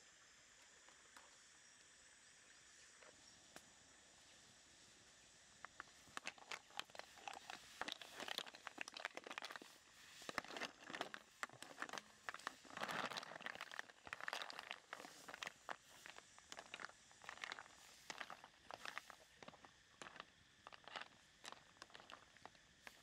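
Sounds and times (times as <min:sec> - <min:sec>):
snail shells rattling: 0:05.7 - 0:23.0.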